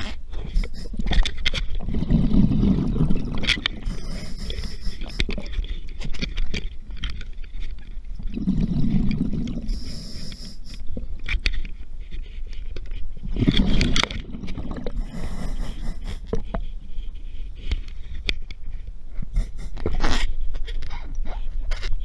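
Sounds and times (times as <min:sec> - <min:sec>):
underwater exhaled bubbles: 0:01.8 - 0:05.5, 0:08.2 - 0:11.2, 0:13.3 - 0:16.6
regulator hissing inhale: 0:03.8 - 0:05.3, 0:09.6 - 0:10.9, 0:14.9 - 0:16.6.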